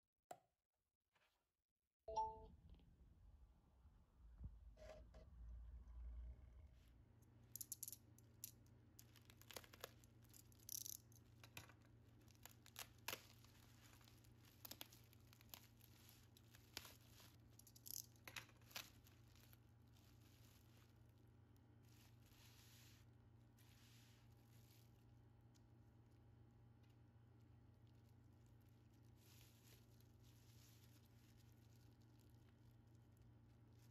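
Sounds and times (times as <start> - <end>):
bubble wrap crinkling: 8.3 - 33.9.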